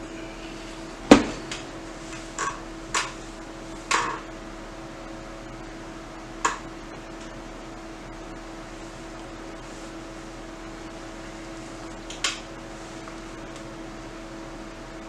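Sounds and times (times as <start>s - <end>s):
fan noise: 0.0s - 15.0s
steady electrical hum: 0.0s - 15.0s
knocks of things being handled: 1.1s - 3.2s, 3.9s - 4.3s.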